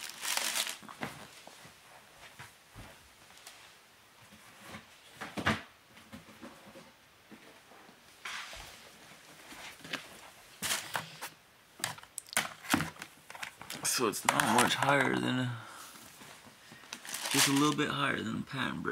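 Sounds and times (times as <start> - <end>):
cardboard box rustle: 17.0 - 17.8.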